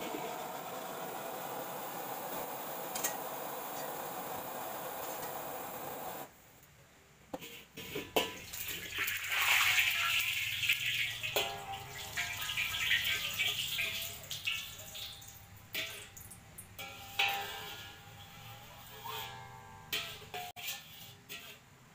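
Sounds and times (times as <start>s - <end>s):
gas burner roaring: 0.0s - 6.3s
water hissing on hot wok: 0.0s - 6.3s, 8.3s - 19.4s
spatula scraping in wok: 7.4s - 10.0s, 16.8s - 21.9s.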